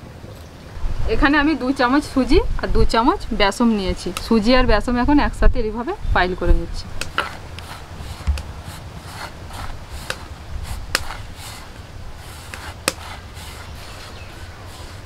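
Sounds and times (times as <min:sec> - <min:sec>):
fingertips scraping flour on plate: 0:07.1 - 0:15.0.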